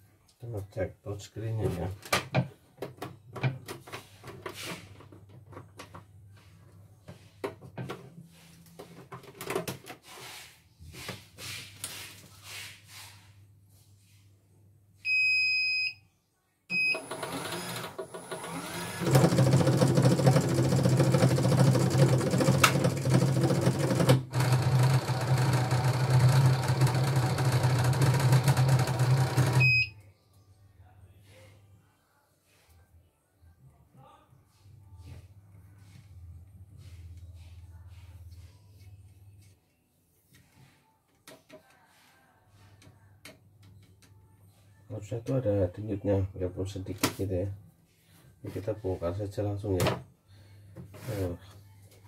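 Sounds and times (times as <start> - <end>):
machine beep: 16.7 - 17.3, 28.9 - 30.0
embroidery machine motor humming: 17.0 - 29.6.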